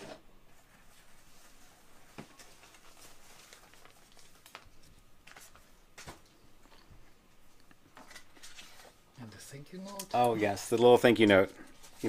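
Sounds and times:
foam sheet rustling: 0:00.6 - 0:06.2.

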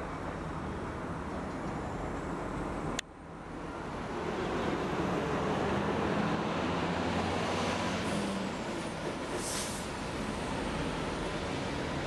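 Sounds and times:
heavy engines and traffic rumble: 0:00.0 - 0:12.0
short hiss: 0:09.4 - 0:09.9.

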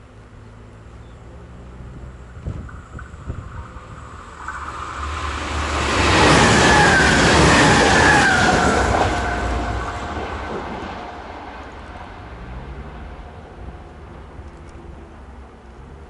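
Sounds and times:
electric train passing: 0:00.0 - 0:16.0.

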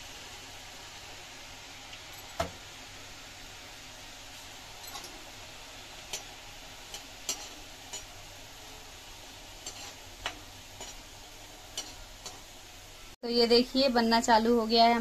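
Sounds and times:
batter frying in hot oil: 0:00.0 - 0:15.0.

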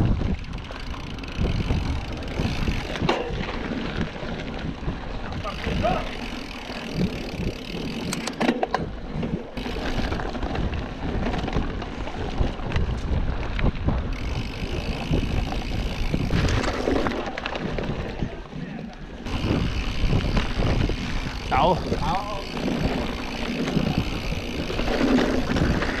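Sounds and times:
bike rattling and clicking: 0:00.0 - 0:26.0
knobby tyres rolling on dirt: 0:00.0 - 0:26.0
wind rumbling on microphone: 0:00.0 - 0:26.0.

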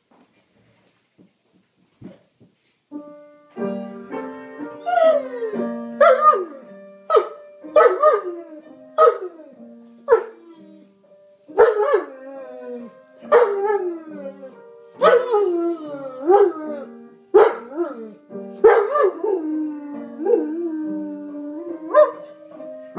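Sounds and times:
dog barking: 0:07.1 - 0:08.2, 0:10.1 - 0:10.3, 0:11.6 - 0:12.1, 0:13.3 - 0:13.6, 0:15.0 - 0:15.3, 0:17.4 - 0:17.7, 0:18.6 - 0:19.2, 0:21.9 - 0:22.2.

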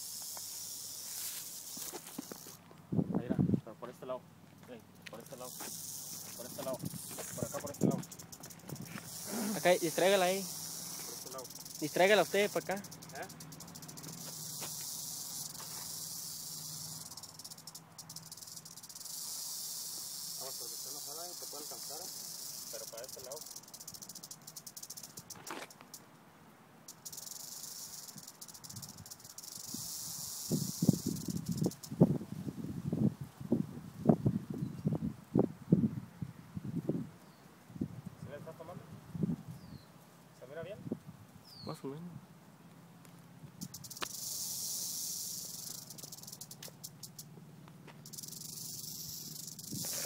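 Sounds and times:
rattlesnake rattling: 0:00.0 - 0:02.7, 0:04.5 - 0:26.1, 0:26.8 - 0:32.5, 0:43.5 - 0:50.0
crunching thumps in dry grass: 0:01.1 - 0:02.7.

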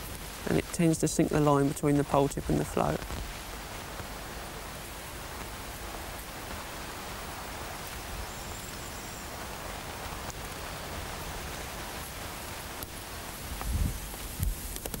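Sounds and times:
even outdoor hiss: 0:00.0 - 0:15.0.

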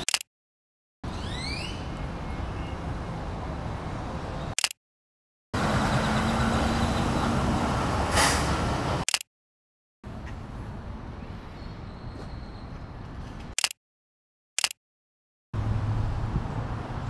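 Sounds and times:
traffic on wet roads: 0:05.6 - 0:09.0, 0:15.6 - 0:17.0
camera shutter click: 0:14.6 - 0:14.8.

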